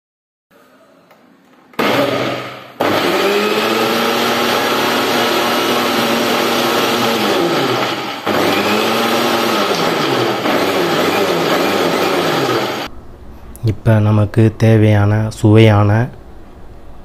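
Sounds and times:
blender motor whining: 1.8s - 12.9s.

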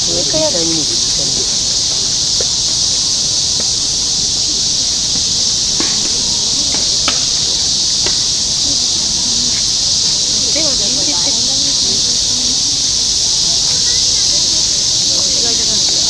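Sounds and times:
insects hissing chorus: 0.0s - 16.0s.

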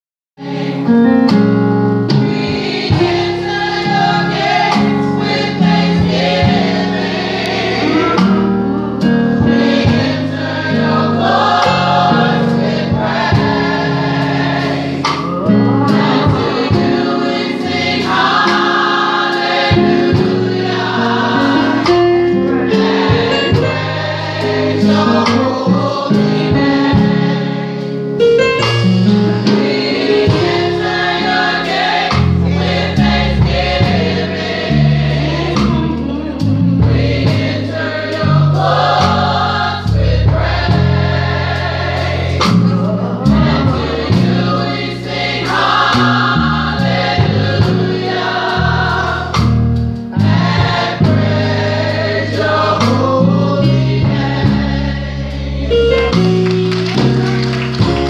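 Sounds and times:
electronic keyboard: 0.4s - 58.0s
drums: 0.6s - 58.0s
women's choir singing: 2.2s - 28.0s, 29.3s - 56.2s.

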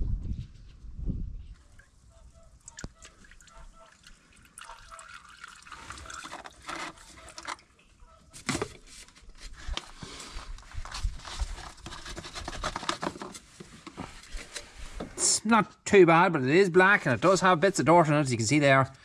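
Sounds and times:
diesel dribbling into container: 1.6s - 7.8s.

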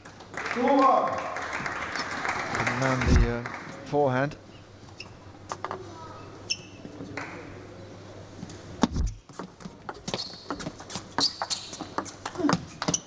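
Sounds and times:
short high squeaks: 6.4s - 6.8s, 10.1s - 10.6s, 11.2s - 11.9s.

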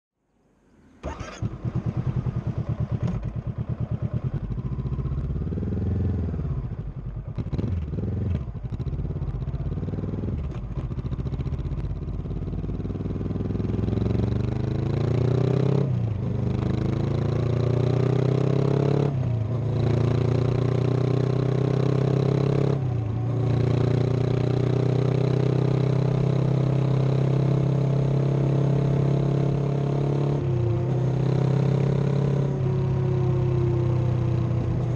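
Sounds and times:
motorcycle engine starting and idling: 0.8s - 27.2s
motorcycle accelerating through gears: 0.9s - 34.9s.

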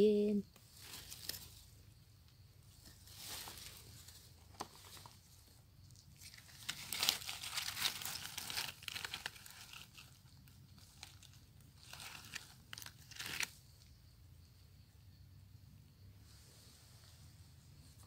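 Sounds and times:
dry leaves rustling and crackling: 6.2s - 10.2s, 10.8s - 13.5s.

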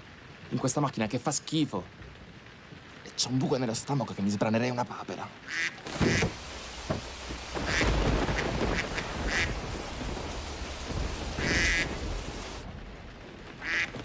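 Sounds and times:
heavy rain on car: 5.4s - 14.0s
low rumble of thunder: 6.3s - 14.0s
duck quacking: 8.8s - 9.6s, 11.4s - 11.9s, 13.6s - 13.9s.

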